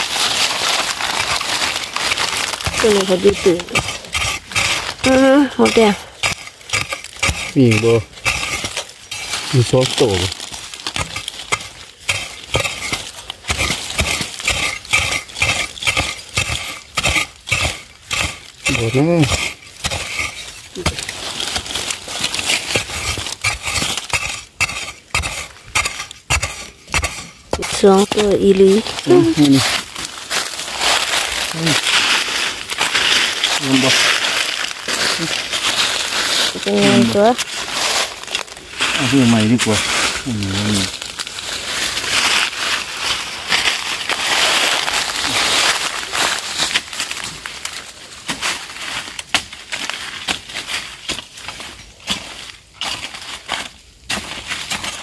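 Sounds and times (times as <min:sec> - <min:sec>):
brushing through undergrowth: 0:00.0 - 0:55.0
spade chopping into dry soil: 0:02.5 - 0:30.6, 0:49.2 - 0:50.5.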